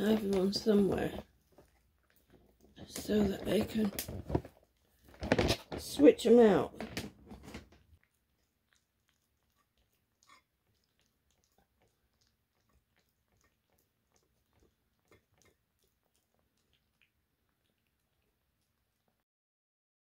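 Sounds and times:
kitten chewing food: 0.0 - 5.8, 6.8 - 19.2.

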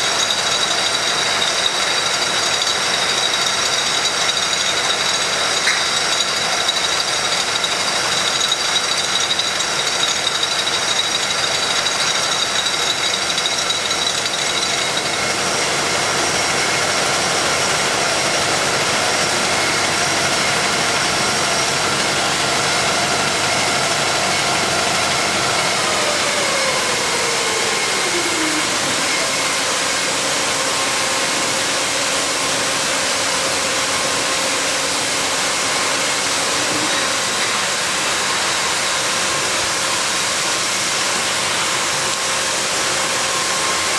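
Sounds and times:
bottle filler machine hiss and rattle: 0.0 - 43.9
machine whining tones: 19.0 - 32.7.

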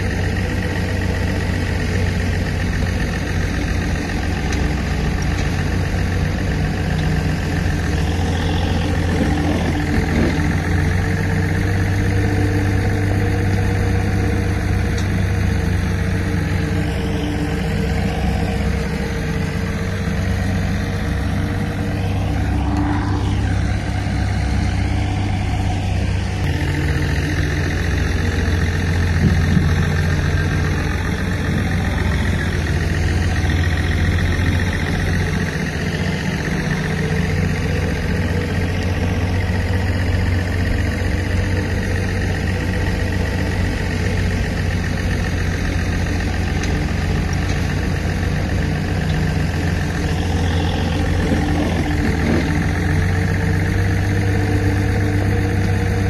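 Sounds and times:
bulldozer diesel engine running: 0.0 - 56.0.

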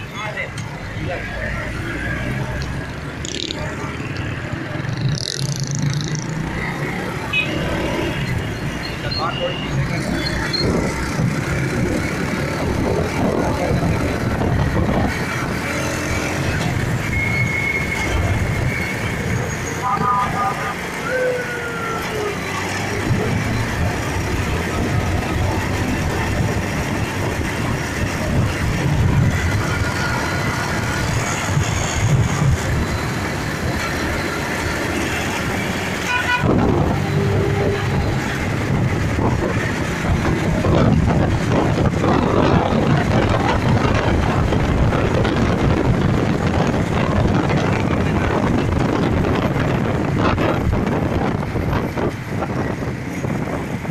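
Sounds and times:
motorcycle engine: 2.2 - 8.9
wind on microphone: 10.4 - 19.4, 22.8 - 33.9, 36.3 - 53.9.

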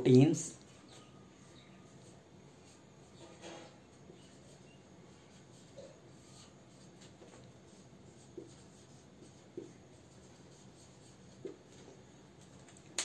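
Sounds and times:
low room hum: 0.0 - 13.0
marker squeaking on whiteboard: 0.7 - 11.6.

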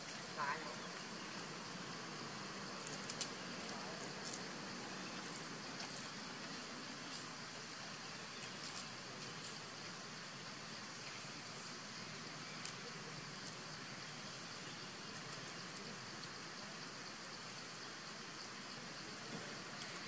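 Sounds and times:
faint outdoor hiss: 0.0 - 20.0
faint ticks: 2.8 - 4.4.

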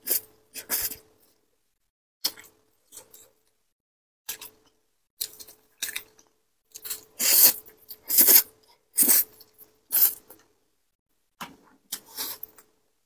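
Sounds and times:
person slurping noodles: 6.9 - 9.3, 9.9 - 10.3.

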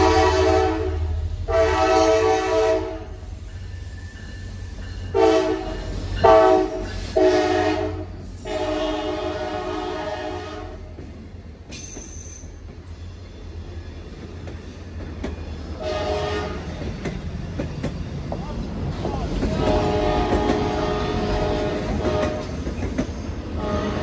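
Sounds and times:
locomotive air horn: 0.0 - 3.2, 5.1 - 10.9, 15.8 - 16.7, 19.5 - 22.6, 23.5 - 24.0
train wheels rolling: 0.0 - 24.0
wheels clicking over rail joints: 13.7 - 15.8, 16.5 - 24.0.

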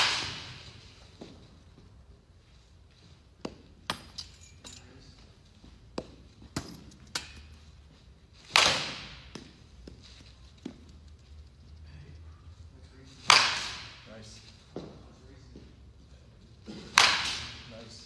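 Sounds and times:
bat hitting baseball: 0.0 - 0.7, 8.4 - 9.6, 13.2 - 14.0, 16.7 - 17.7.

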